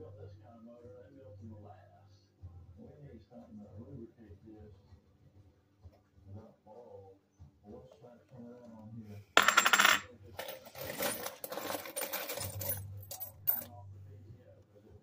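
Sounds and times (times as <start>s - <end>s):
silver coins clinking: 9.4s - 13.7s.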